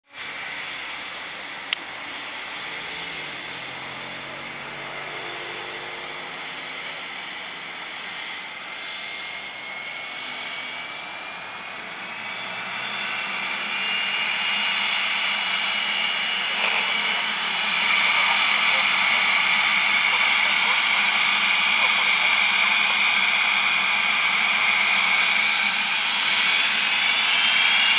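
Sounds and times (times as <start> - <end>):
jet engines whining: 0.1 - 27.9.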